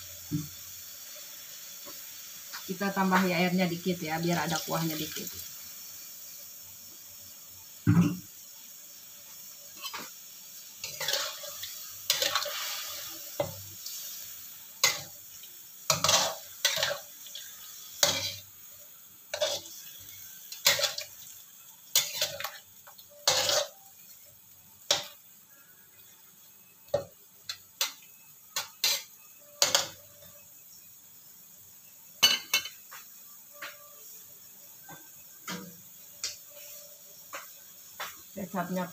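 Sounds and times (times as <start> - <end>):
spatula scraping a cooking pan: 9.8 - 10.2, 10.8 - 15.1, 15.9 - 18.6, 19.3 - 21.3, 21.9 - 23.9, 28.6 - 30.0.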